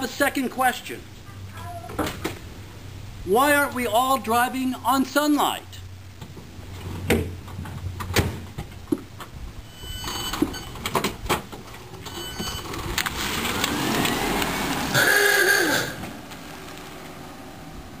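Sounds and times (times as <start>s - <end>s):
tyre and drive noise: 6.2s - 18.0s
electric car pulling away: 12.2s - 18.0s.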